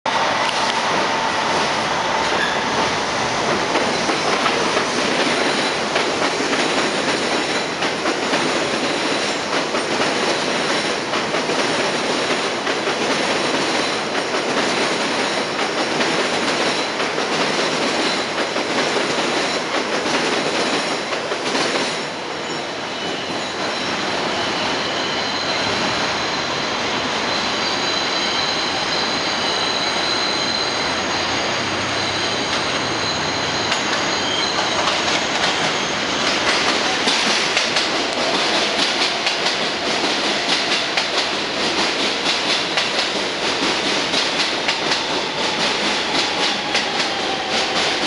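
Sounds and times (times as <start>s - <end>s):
train wheels rumbling on rails: 0.1s - 48.0s
faint wheel squeal: 22.4s - 36.3s.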